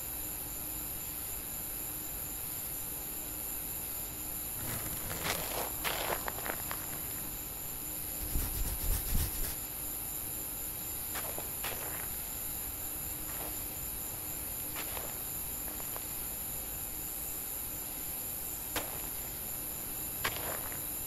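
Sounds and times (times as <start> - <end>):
steady high hiss: 0.5 - 21.0
soil crunching and scraping: 4.6 - 8.3, 11.1 - 12.3, 13.2 - 16.3, 20.2 - 21.0
low thuds in dirt: 4.6 - 9.4, 18.8 - 19.6, 20.2 - 21.0.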